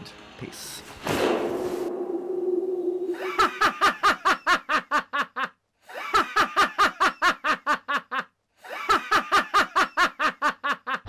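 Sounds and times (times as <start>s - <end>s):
low held tone: 1.9s - 3.6s
person laughing: 3.1s - 11.0s.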